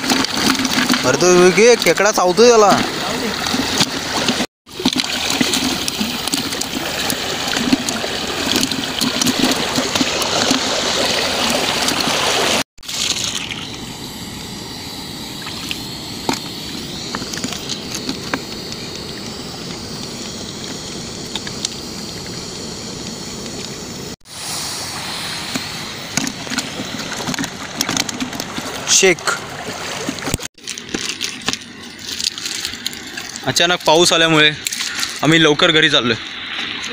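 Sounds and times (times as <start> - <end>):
water sloshing in a bucket: 0.0 - 22.7, 25.5 - 36.9
steady hiss: 14.0 - 27.4.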